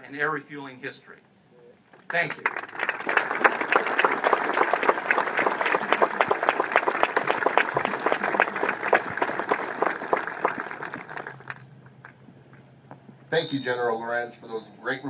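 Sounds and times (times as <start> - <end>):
audience applauding: 2.2 - 12.2.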